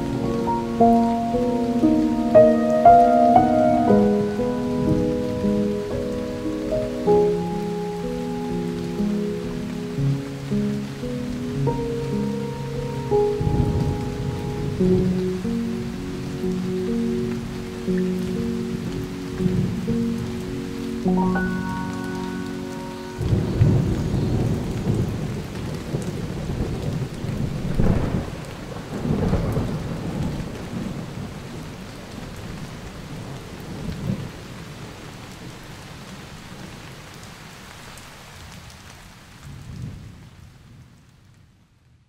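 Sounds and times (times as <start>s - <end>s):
thunder rumbling: 0.0s - 10.1s, 11.0s - 20.4s, 21.1s - 31.6s
music track: 0.0s - 25.0s
rain falling: 0.0s - 42.0s.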